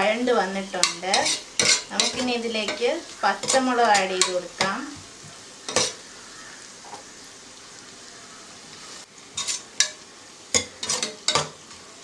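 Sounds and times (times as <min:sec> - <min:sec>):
onions sizzling in hot oil: 0:00.0 - 0:12.0.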